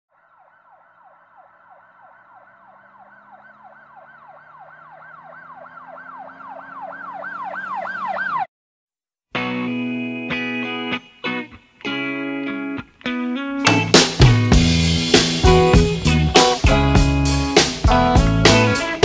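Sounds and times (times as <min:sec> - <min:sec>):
police siren yelping: 0:00.1 - 0:08.5.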